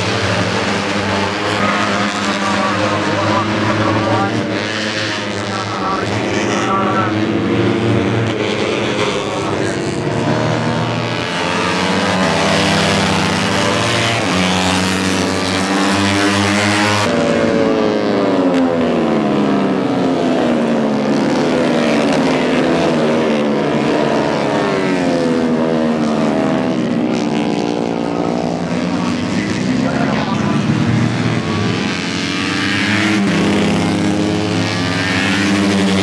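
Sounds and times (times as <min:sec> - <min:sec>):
motorcycle engines revving: 0:00.0 - 0:36.0.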